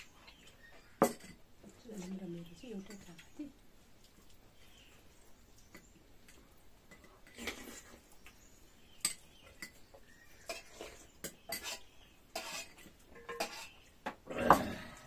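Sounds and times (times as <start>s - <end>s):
cutlery clinking on plates: 0.9s - 1.4s, 5.7s - 7.9s, 9.0s - 13.8s.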